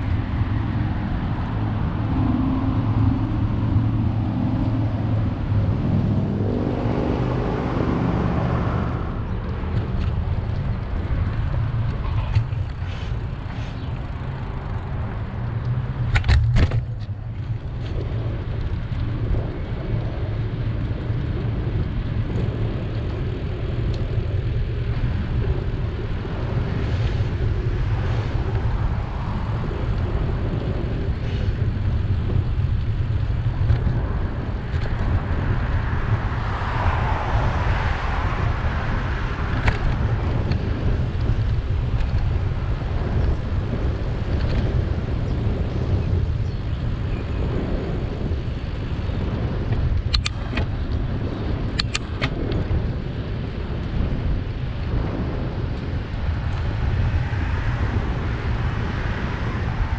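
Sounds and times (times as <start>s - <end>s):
road traffic passing: 0.0s - 59.9s
wind rumble on microphone: 0.0s - 59.9s
sharp clicks: 50.1s - 50.7s, 51.8s - 52.6s.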